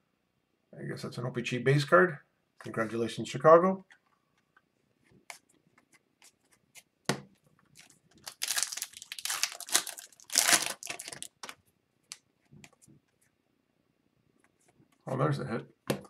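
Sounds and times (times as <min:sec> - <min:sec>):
card pack wrapper tearing: 0:07.8 - 0:11.6.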